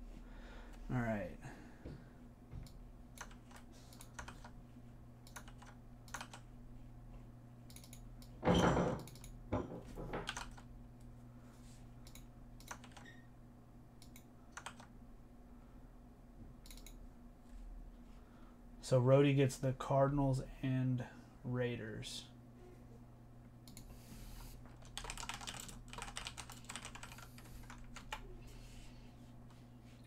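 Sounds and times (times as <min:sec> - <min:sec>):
computer keyboard typing: 0:03.1 - 0:04.6, 0:05.2 - 0:06.5, 0:07.7 - 0:08.4, 0:10.2 - 0:10.7, 0:12.0 - 0:13.1, 0:14.0 - 0:14.9, 0:24.7 - 0:28.3.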